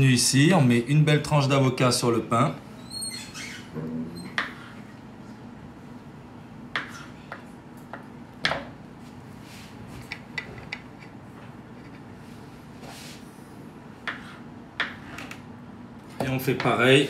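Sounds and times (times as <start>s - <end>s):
low room noise: 0.0s - 17.0s
plates clicking and tapping: 10.0s - 11.2s.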